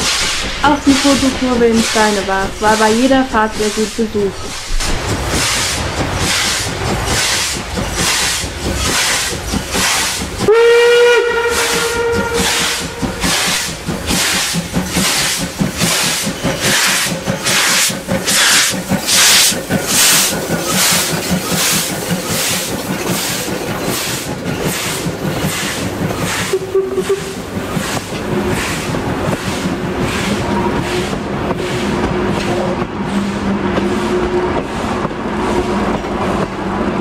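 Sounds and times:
steam locomotive exhaust beats: 0.0 - 37.0
train coaches rolling by: 0.0 - 37.0
steam whistle blast: 10.5 - 13.3, 26.4 - 27.4.

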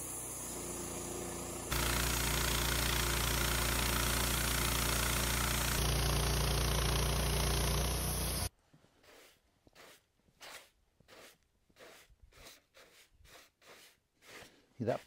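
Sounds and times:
band saw cutting a log: 0.0 - 14.4
brush sweeping sawdust: 0.0 - 15.0.

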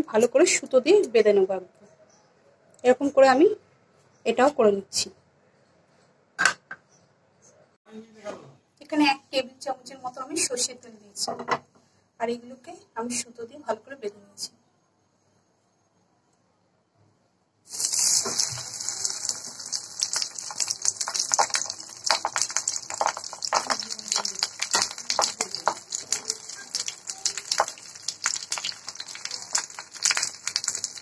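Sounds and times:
hot oil sizzling and popping: 17.7 - 31.0.

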